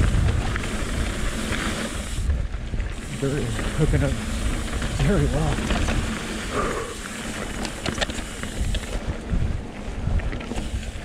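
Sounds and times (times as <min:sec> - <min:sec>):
bike clicks and rattles: 0:00.0 - 0:11.0
bike tyres rolling on dirt: 0:00.0 - 0:11.0
wind rushing on microphone: 0:00.0 - 0:11.0.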